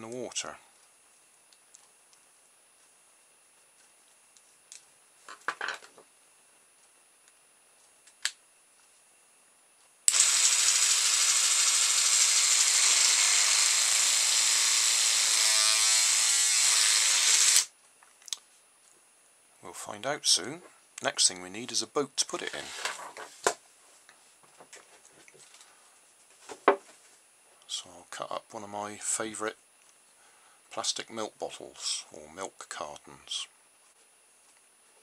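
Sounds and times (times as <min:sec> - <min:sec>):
electric toothbrush buzzing: 0:10.1 - 0:17.7.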